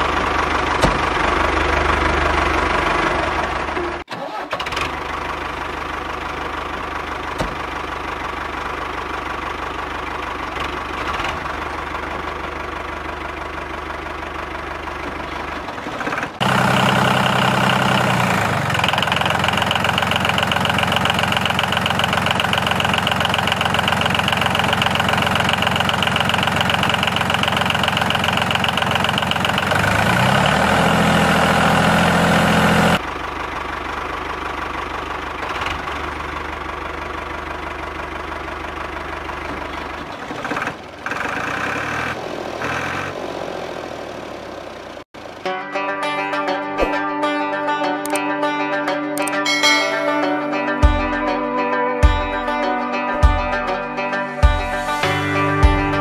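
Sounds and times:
small engine knocking: 0:04.6 - 0:31.0, 0:33.6 - 0:42.2.

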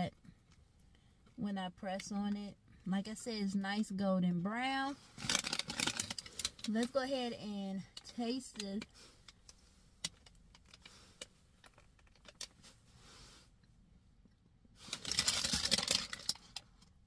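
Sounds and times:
paper bag crinkling: 0:05.2 - 0:06.6, 0:14.8 - 0:16.6.

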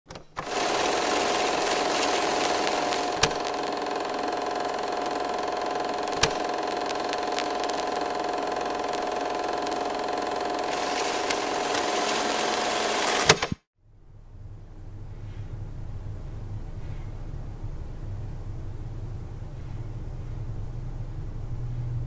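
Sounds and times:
mechanical whirr with hum: 0:00.1 - 0:13.6
sharp click: 0:06.1 - 0:07.8, 0:11.2 - 0:13.6.

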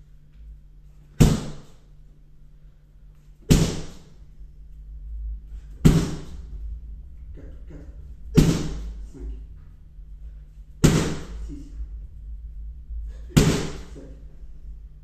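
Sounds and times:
kicks slapping a kick shield: 0:01.2 - 0:01.8, 0:03.5 - 0:04.1, 0:05.8 - 0:06.3, 0:08.4 - 0:09.0, 0:10.8 - 0:11.5, 0:13.3 - 0:13.9.

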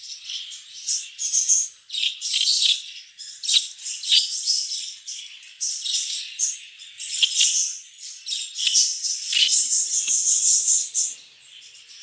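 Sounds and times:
budgerigars chirping: 0:00.2 - 0:05.0, 0:05.6 - 0:12.0.

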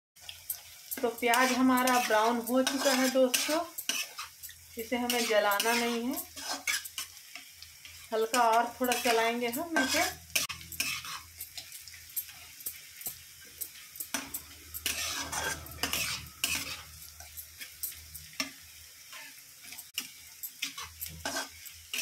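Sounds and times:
metal spatula scraping pan: 0:00.2 - 0:22.0
onions sizzling in oil: 0:00.2 - 0:22.0.

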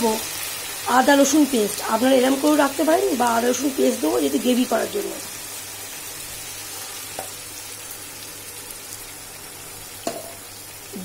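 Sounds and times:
chicken frying in hot oil: 0:00.0 - 0:11.0.

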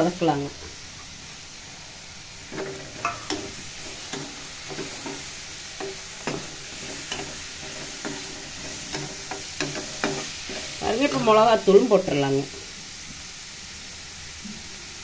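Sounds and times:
frying sizzle: 0:00.0 - 0:15.0
spoon clinking and scraping pan: 0:02.5 - 0:11.4.

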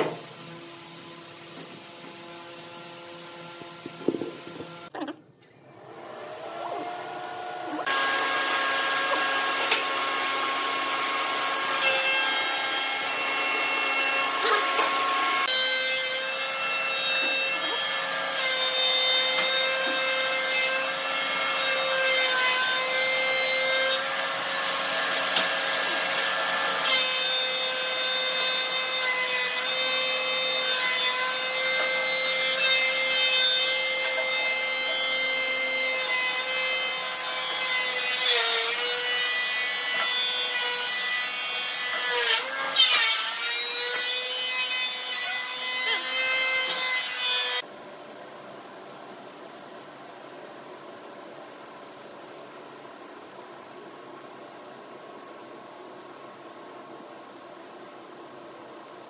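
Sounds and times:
power tool motor on wood: 0:05.9 - 0:11.8.

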